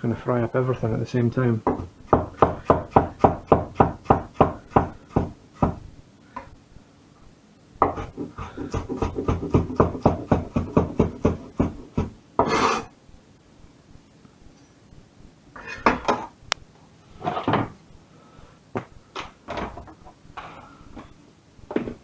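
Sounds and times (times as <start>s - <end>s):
knife chopping on wooden board: 1.7s - 5.8s, 7.8s - 12.5s.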